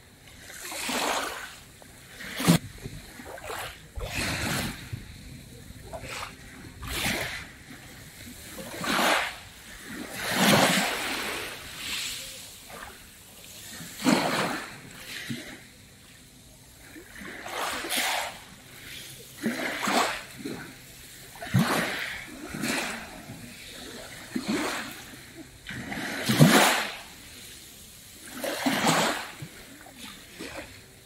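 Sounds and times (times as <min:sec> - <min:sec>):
small waves lapping on pebbles: 0:00.0 - 0:31.0.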